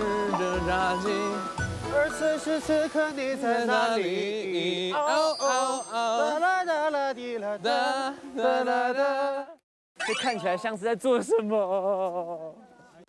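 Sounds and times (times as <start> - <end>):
pop song with vocals: 0.0 - 9.6.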